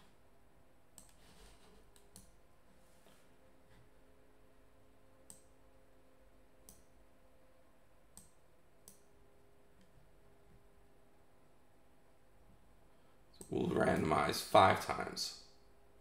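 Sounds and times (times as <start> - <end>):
computer mouse clicks: 1.0 - 2.4, 5.3 - 5.5, 6.6 - 6.9, 8.1 - 9.1.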